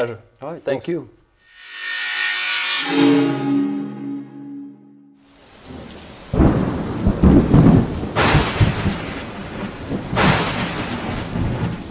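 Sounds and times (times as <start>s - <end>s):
rain: 5.2s - 11.9s
thunder rumbling: 5.4s - 11.9s
sharp thunder cracks: 5.7s - 11.9s.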